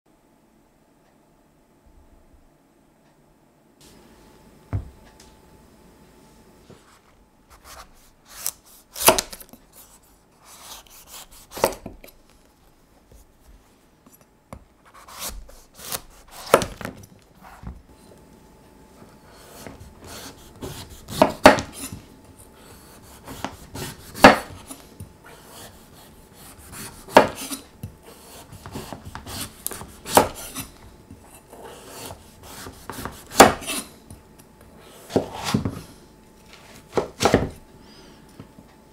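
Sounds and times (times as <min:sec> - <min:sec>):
knife scraping pumpkin rind: 0:07.5 - 0:12.2, 0:14.8 - 0:16.7, 0:19.2 - 0:34.0.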